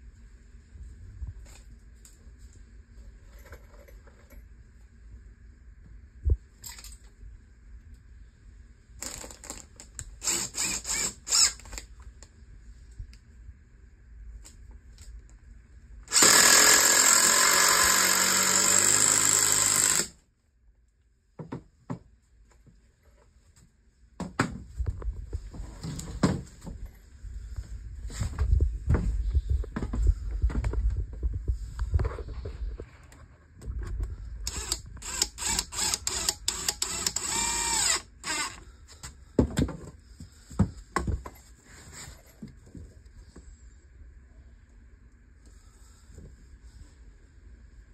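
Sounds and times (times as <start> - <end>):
cordless drill driving screw: 10.2 - 11.8, 16.1 - 20.1, 34.5 - 38.6
wood thumps and knocks: 21.4 - 22.1.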